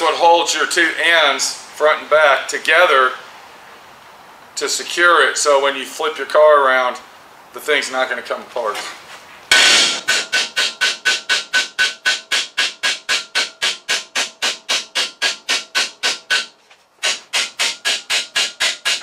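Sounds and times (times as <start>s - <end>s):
rapid metallic ratchet clicking: 9.5s - 19.0s.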